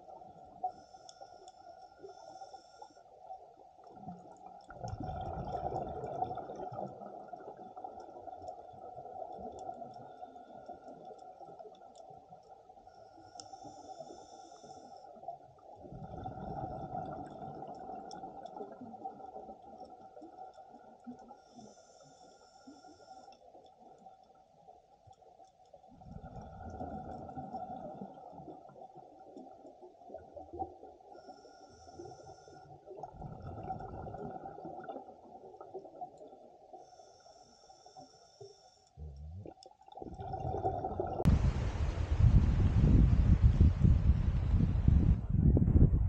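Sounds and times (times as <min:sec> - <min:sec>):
faint crackling clicks: 0:00.1 - 0:15.8, 0:17.0 - 0:40.0
regulator hissing inhale: 0:00.7 - 0:03.3, 0:12.9 - 0:15.2, 0:21.4 - 0:23.5, 0:31.1 - 0:32.9, 0:36.7 - 0:39.0
exhaled bubbles rushing: 0:04.7 - 0:08.0, 0:15.8 - 0:19.5, 0:25.9 - 0:28.8, 0:33.0 - 0:36.2, 0:39.0 - 0:44.8.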